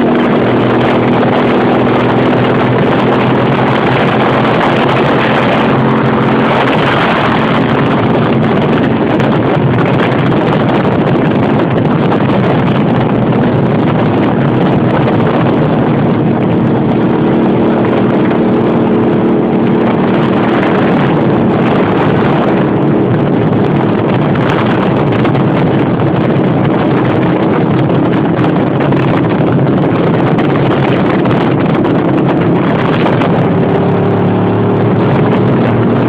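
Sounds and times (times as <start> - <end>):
motorcycle engines droning: 0.0 - 36.0
wind noise on microphone: 0.0 - 36.0.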